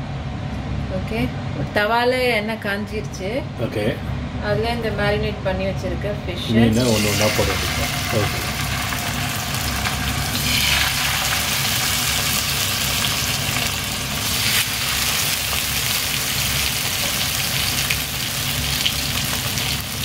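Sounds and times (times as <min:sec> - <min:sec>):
fish sizzling in frying pan: 0:06.8 - 0:20.0.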